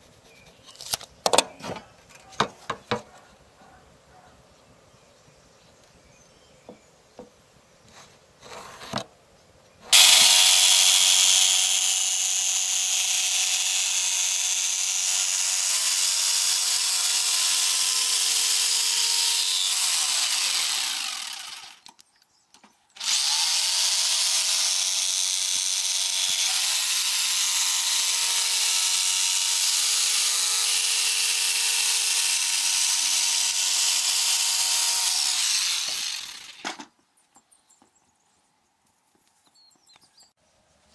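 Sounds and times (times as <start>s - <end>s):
jigsaw cutting wood: 9.9s - 22.0s, 23.0s - 36.8s.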